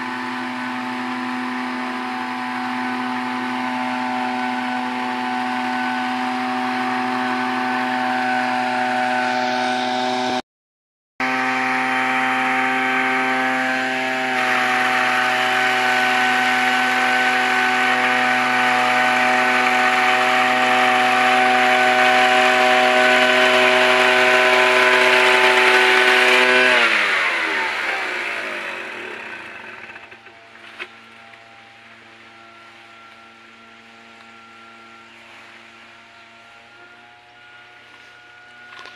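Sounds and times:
small engine running: 0:00.0 - 0:10.4, 0:11.2 - 0:38.9.

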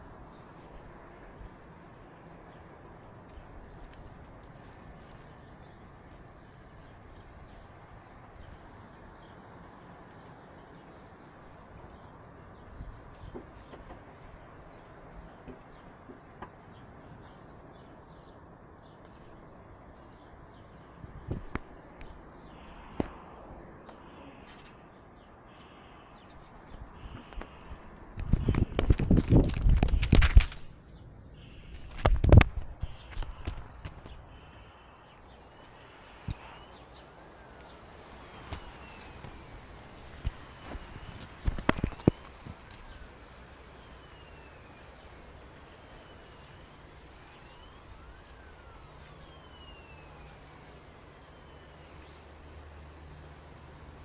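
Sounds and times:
faint distant siren wailing: 0:34.2 - 0:41.2, 0:42.9 - 0:52.9
steady background hiss: 0:34.2 - 0:54.0
faint bird chirps: 0:43.7 - 0:45.2, 0:45.8 - 0:50.4.

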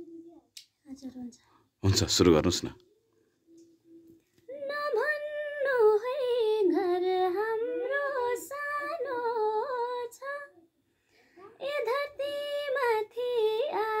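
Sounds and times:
woman singing unaccompanied: 0:03.9 - 0:10.7, 0:11.6 - 0:14.0.

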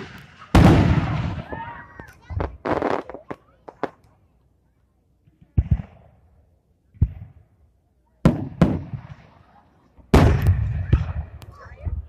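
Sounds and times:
firework crackle: 0:00.0 - 0:04.1.

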